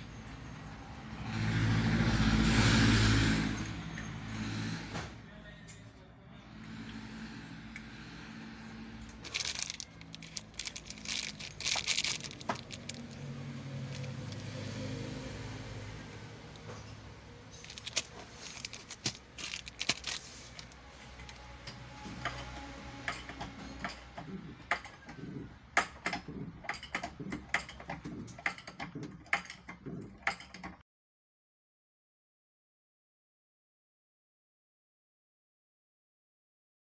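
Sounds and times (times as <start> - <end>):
small parts clinking in bag: 9.1 - 14.4, 17.5 - 21.5
plastic packaging crinkling: 9.2 - 14.4, 17.6 - 21.4.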